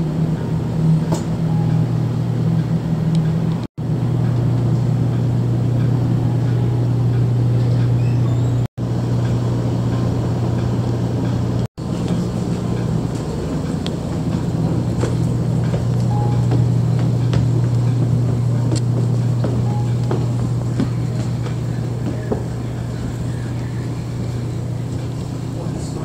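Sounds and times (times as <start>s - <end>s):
ferry engine drone: 0.0s - 26.0s.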